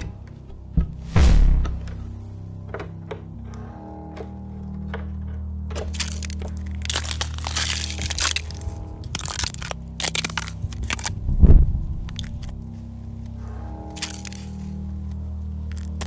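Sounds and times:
steady low drone: 0:00.0 - 0:16.0
deep boom: 0:01.1 - 0:02.2.

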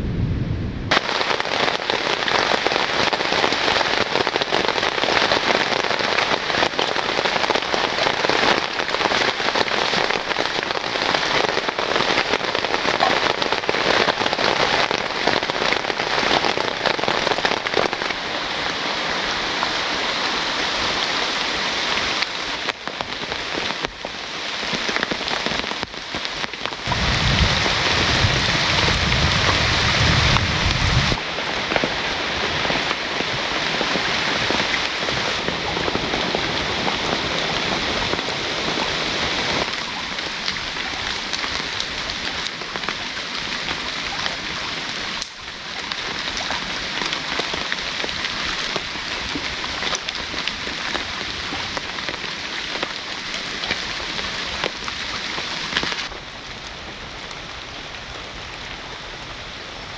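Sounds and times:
deep low rumble: 0:00.0 - 0:00.9
steady rain falling: 0:00.0 - 0:59.9.

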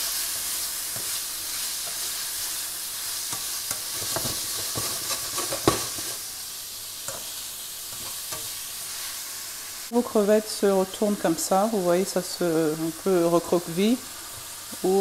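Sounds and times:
food sizzling in oil: 0:00.0 - 0:15.0
spatula scraping a pan: 0:00.1 - 0:06.2, 0:07.0 - 0:09.2.

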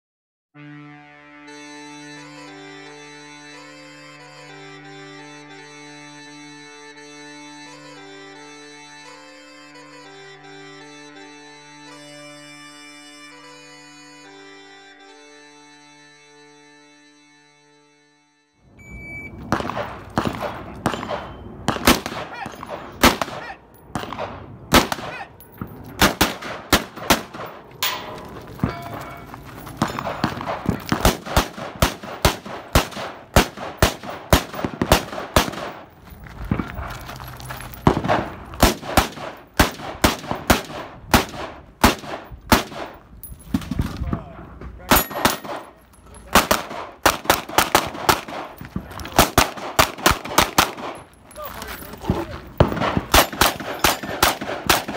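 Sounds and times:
gunshots: 0:19.4 - 0:35.9, 0:37.8 - 0:44.2, 0:44.9 - 0:51.1, 0:52.0 - 0:54.9.

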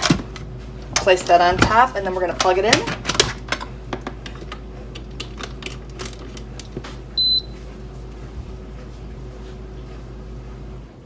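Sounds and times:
short high beep: 0:07.2 - 0:07.6.

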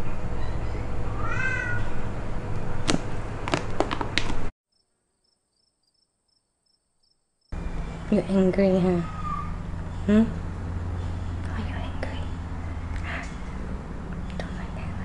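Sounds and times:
cat meowing: 0:01.1 - 0:01.9.

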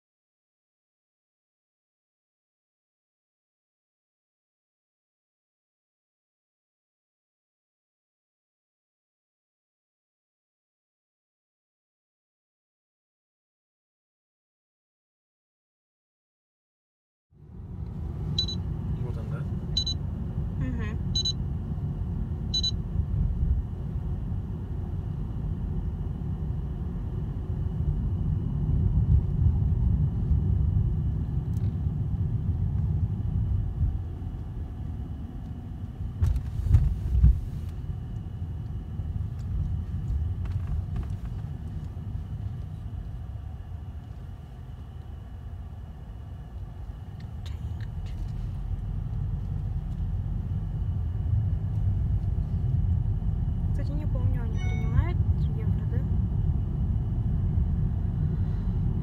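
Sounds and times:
car cabin road rumble: 0:17.5 - 0:59.0
car bumps: 0:36.2 - 0:37.6.

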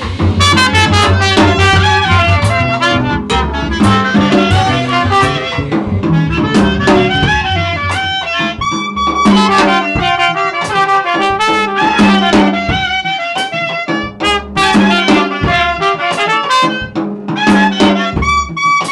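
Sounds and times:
upright bass walking: 0:00.0 - 0:10.8
drum hits: 0:00.0 - 0:18.9
trumpet melody: 0:00.0 - 0:18.9.

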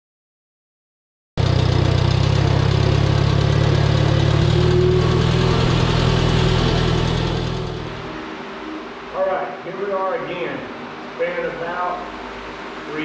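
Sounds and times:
tractor engine running: 0:01.4 - 0:08.2.

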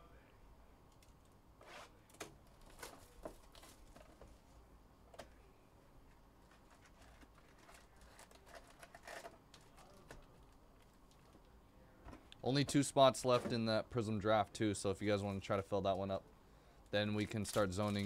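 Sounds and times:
foil packs crinkling: 0:06.5 - 0:10.4, 0:17.2 - 0:18.0.

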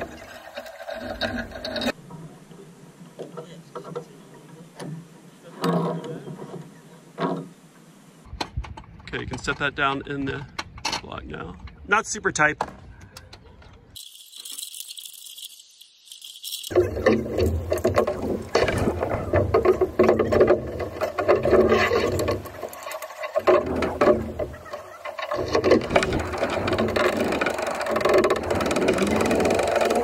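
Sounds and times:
metal rigging hardware rattling: 0:14.0 - 0:30.0.

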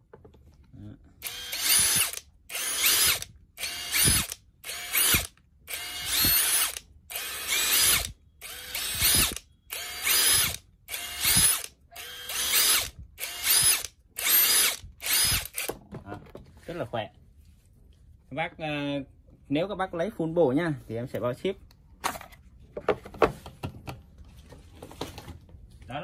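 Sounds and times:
impact driver whine: 0:01.2 - 0:15.8.

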